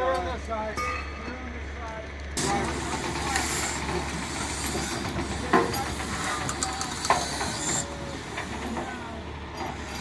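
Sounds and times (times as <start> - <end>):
diesel truck idling: 0.0 - 10.0
steel clanks: 2.4 - 10.0.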